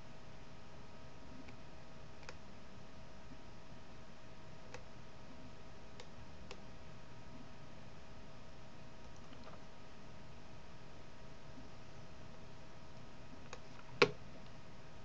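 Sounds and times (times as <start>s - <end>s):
faint hiss and electrical hum: 0.0s - 15.0s
computer mouse clicking: 2.2s - 2.4s, 4.7s - 4.9s, 6.0s - 6.6s, 13.4s - 14.2s.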